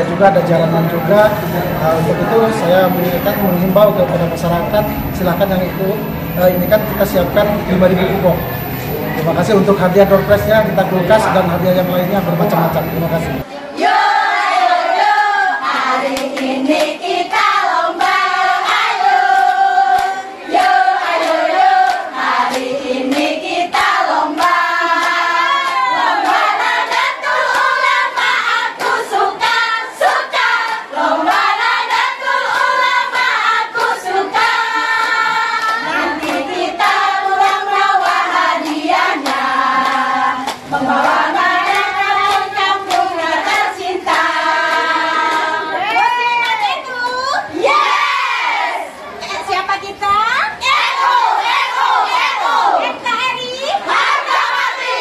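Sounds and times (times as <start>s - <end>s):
women singing in unison: 13.4s - 49.5s, 50.5s - 55.0s
hand claps: 35.0s - 47.2s.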